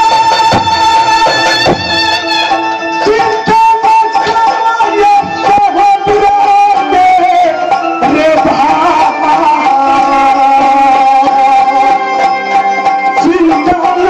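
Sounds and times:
hand-drum strokes: 0:00.0 - 0:07.0.

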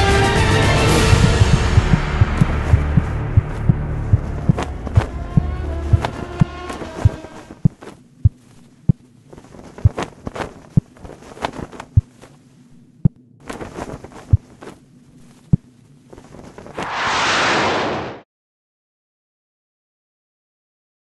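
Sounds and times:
loud rushing noise: 0:00.0 - 0:07.6, 0:16.8 - 0:18.2
low hum: 0:00.0 - 0:18.2
heartbeat-like thumps: 0:00.9 - 0:09.1, 0:09.7 - 0:10.1, 0:11.8 - 0:12.2, 0:14.2 - 0:14.6.

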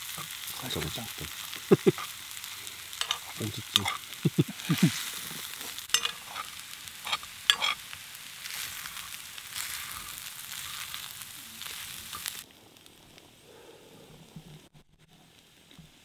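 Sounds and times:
rice sizzling in a skillet: 0:00.0 - 0:13.7
metal spoon scraping pan: 0:02.9 - 0:04.1, 0:05.8 - 0:07.8.

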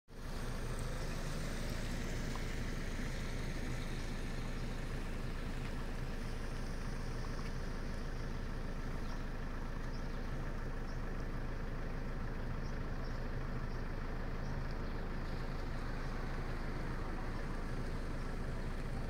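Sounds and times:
vehicle engine idling: 0:00.1 - 0:19.0
faint light ticks: 0:05.6 - 0:05.9, 0:07.2 - 0:07.7, 0:09.1 - 0:10.2, 0:14.6 - 0:15.7.

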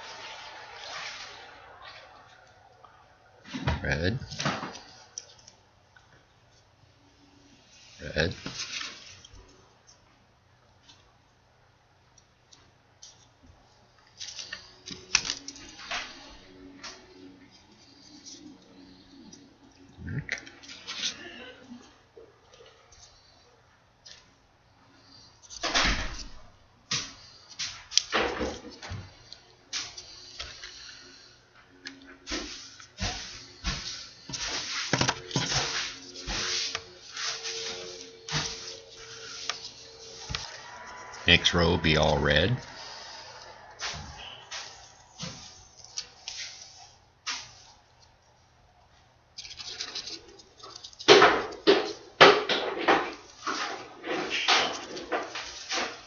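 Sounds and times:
paper rustling and crinkling: 0:14.0 - 0:19.4, 0:32.2 - 0:48.1, 0:49.3 - 0:56.0.

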